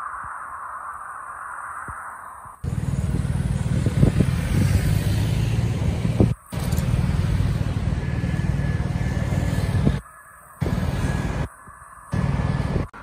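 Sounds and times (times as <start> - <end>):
car and bus engines: 2.6 - 13.0
road traffic passing: 2.6 - 13.0.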